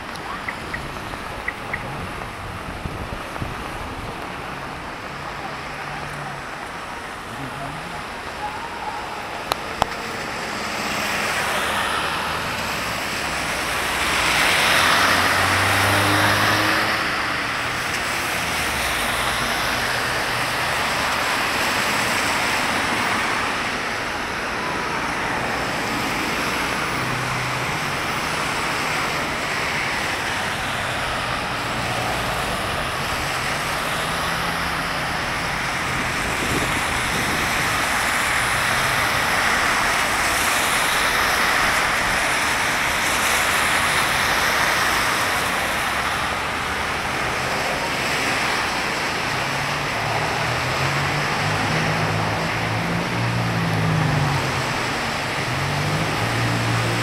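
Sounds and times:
tyres hissing on wet road: 0:00.1 - 0:57.0.

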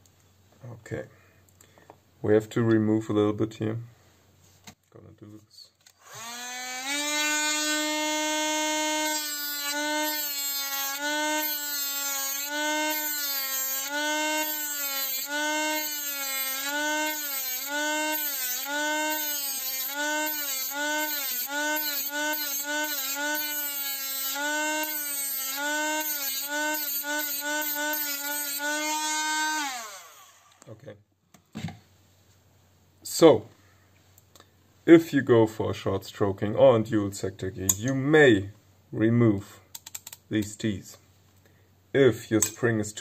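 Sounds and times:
rotary tool grinding: 0:05.9 - 0:30.6.

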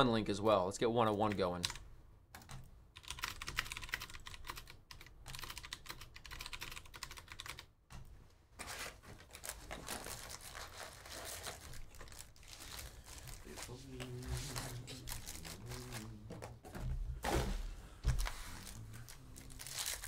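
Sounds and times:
typing on computer keyboard: 0:01.2 - 0:08.1.

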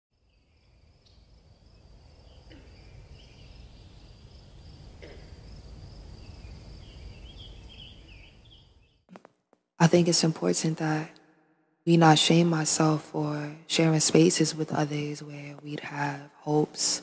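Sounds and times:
bird chirps: 0:00.2 - 0:05.1, 0:06.1 - 0:09.1
high insect trill: 0:00.3 - 0:08.5.

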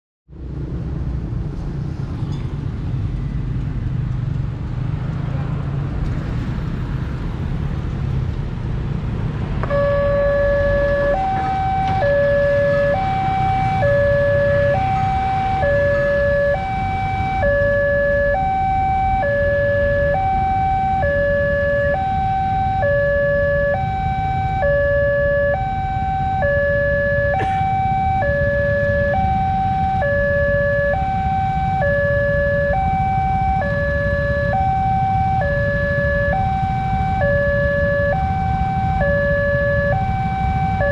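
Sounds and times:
motorcycle traffic rumble: 0:00.3 - 0:40.9
level crossing two-tone alarm: 0:09.7 - 0:40.9.

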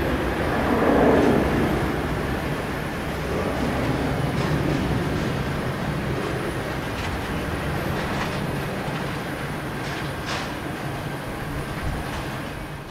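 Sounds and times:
distant jet roar at takeoff: 0:00.0 - 0:12.9.

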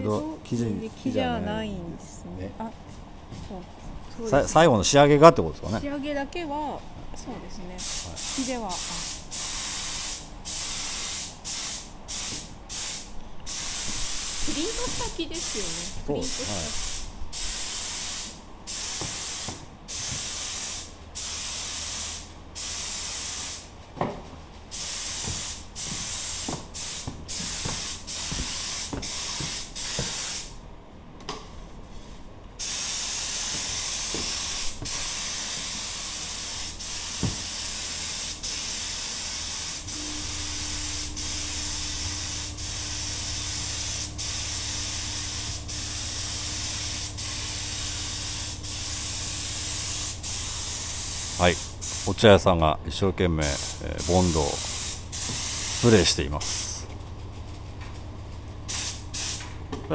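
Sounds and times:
low steady hum: 0:00.0 - 0:09.4, 0:39.6 - 0:59.9
air spray gun hissing: 0:07.8 - 0:23.7, 0:24.7 - 0:30.5, 0:32.6 - 0:52.3, 0:53.4 - 0:56.8, 0:58.7 - 0:59.5.

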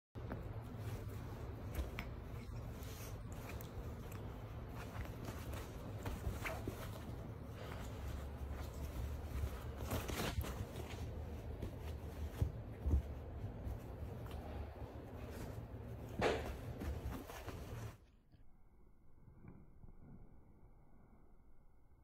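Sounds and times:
fabric scuffling and rustling: 0:00.2 - 0:18.0.

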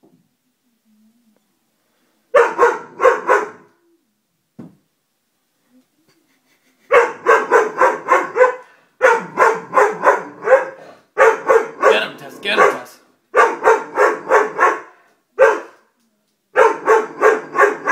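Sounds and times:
dog barking: 0:02.3 - 0:03.7, 0:06.9 - 0:15.9, 0:16.6 - 0:17.9.

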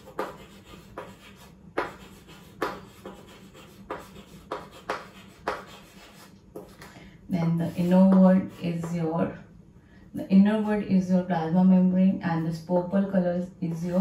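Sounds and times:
chalk writing on chalkboard: 0:00.0 - 0:06.9, 0:07.6 - 0:09.0.

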